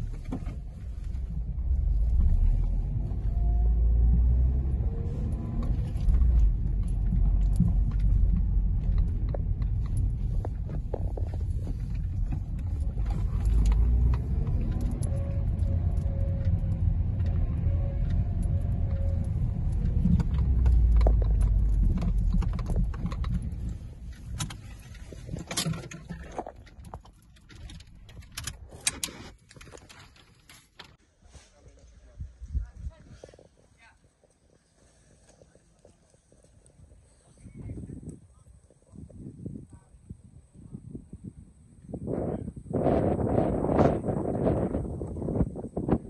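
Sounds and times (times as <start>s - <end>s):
car engine and road rumble: 0.0s - 46.0s
light clicks and rattles: 4.4s - 31.0s.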